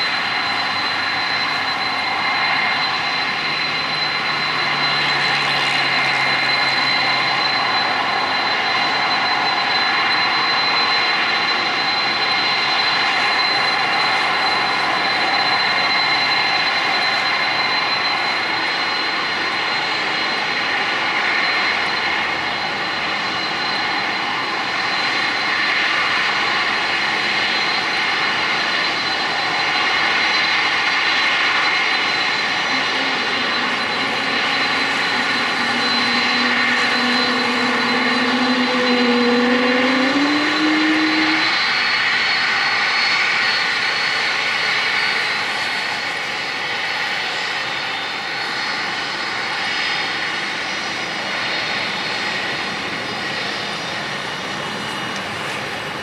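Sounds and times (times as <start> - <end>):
jet engines roaring: 0.0 - 56.0
lower hum: 32.6 - 41.7.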